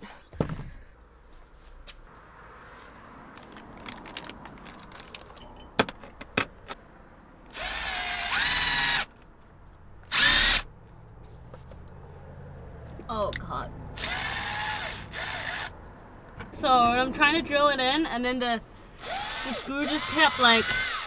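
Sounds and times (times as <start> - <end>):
cordless drill motor whine: 7.5 - 9.1, 10.1 - 10.6, 14.0 - 15.7, 19.0 - 21.0.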